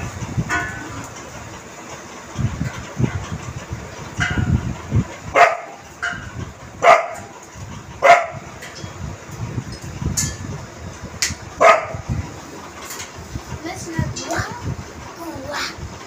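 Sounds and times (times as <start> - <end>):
dog barking: 5.4 - 5.8, 6.8 - 7.3, 8.0 - 8.4, 11.6 - 12.0.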